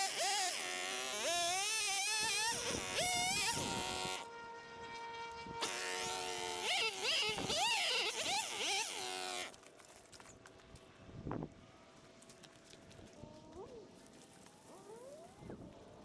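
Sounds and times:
chainsaw revving: 0.0 - 4.3, 5.6 - 9.6.

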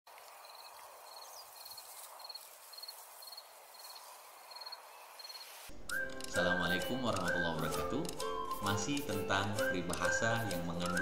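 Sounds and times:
insect chirping: 0.4 - 8.5.

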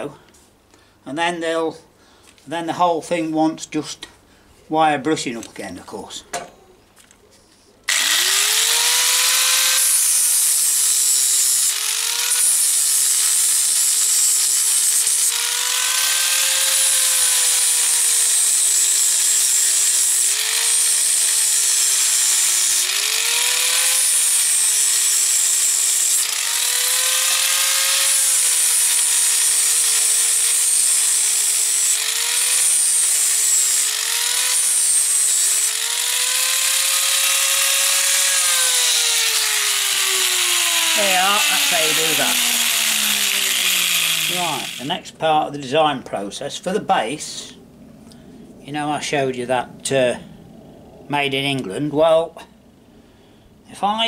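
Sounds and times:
angle grinder grinding metal: 7.9 - 45.0.

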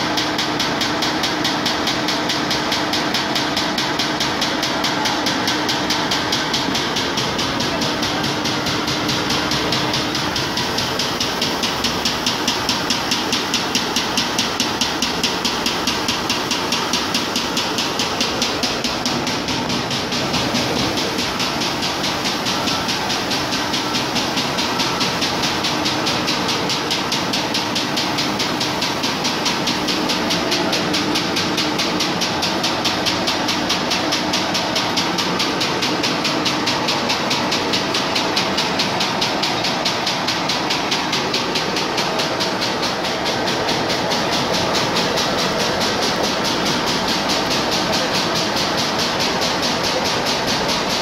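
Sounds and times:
paper cutting machine clattering: 0.0 - 51.0
rollers hissing: 15.1 - 51.0.

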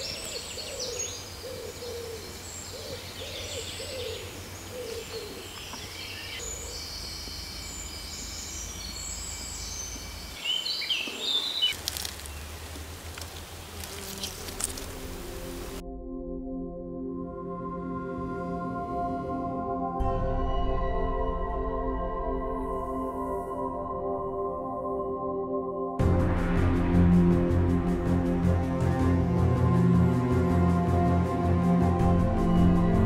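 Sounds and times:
birds chirping and singing: 0.0 - 15.7
steady low rumble: 26.0 - 33.0.

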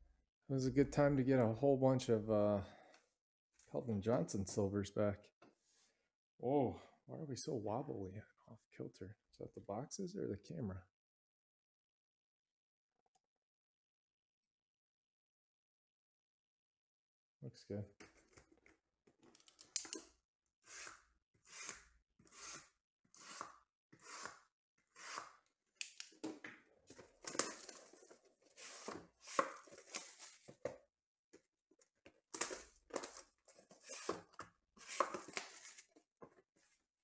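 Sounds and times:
plastic wrap tearing and crinkling: 26.9 - 30.6, 34.8 - 35.9.

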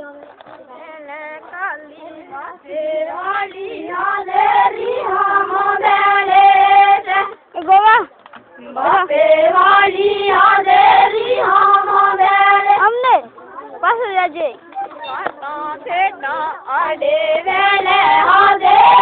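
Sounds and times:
high voices singing together: 0.8 - 7.4, 8.7 - 13.0, 15.1 - 19.0.

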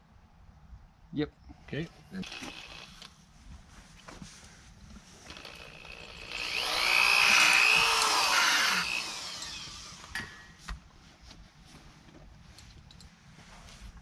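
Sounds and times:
electric drill into wood: 2.2 - 3.1, 5.3 - 10.4.

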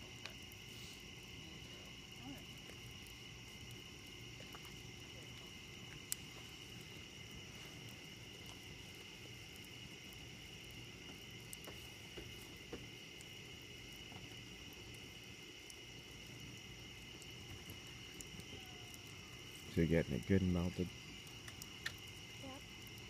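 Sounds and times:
crickets chirring: 0.0 - 23.0
wood fire crackling: 0.0 - 23.0.

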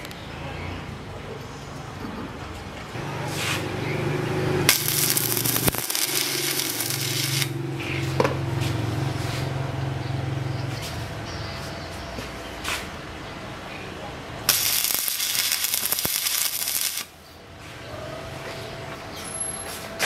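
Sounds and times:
welding arc crackling and hissing: 4.6 - 7.6, 14.5 - 17.2.

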